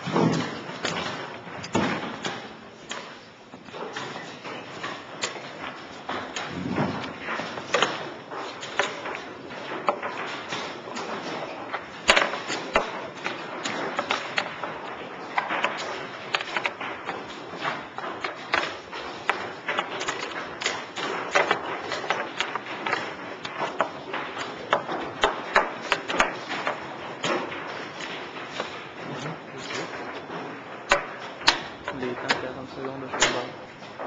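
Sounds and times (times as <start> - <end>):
chess pieces clacking on board: 6.2 - 32.4.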